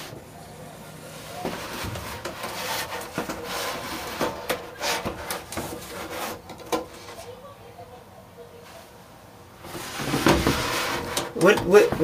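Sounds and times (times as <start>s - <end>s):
wooden board scraping on box: 9.7s - 11.3s.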